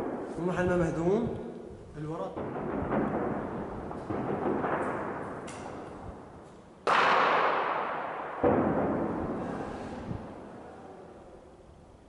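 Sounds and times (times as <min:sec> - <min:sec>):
gunshots echoing among buildings: 0:00.0 - 0:01.2, 0:02.1 - 0:11.0
faint gunfire cracks: 0:06.8 - 0:09.4.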